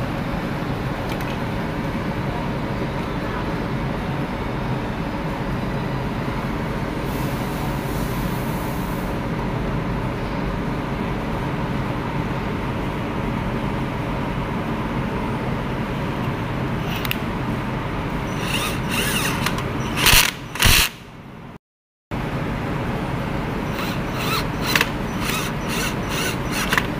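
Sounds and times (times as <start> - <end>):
steady background hum: 0.0 - 26.9
cordless drill spinning: 16.8 - 17.2, 18.3 - 21.0, 23.7 - 26.9.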